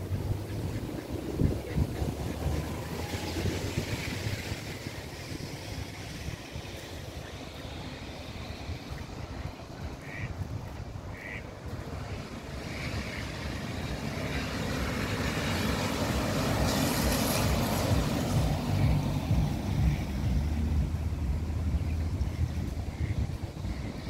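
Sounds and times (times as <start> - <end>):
car tyres hissing on wet road: 1.2 - 9.4, 12.1 - 21.3.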